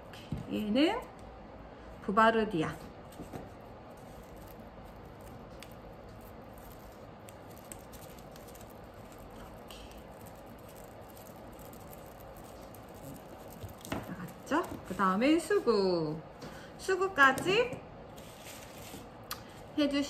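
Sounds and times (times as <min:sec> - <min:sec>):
tape rustling and ticking: 0:03.1 - 0:15.3.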